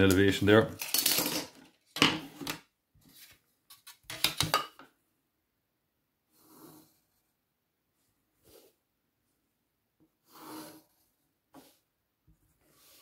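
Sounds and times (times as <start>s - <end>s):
pencil rubbing on paper: 10.2s - 11.9s, 12.6s - 13.0s.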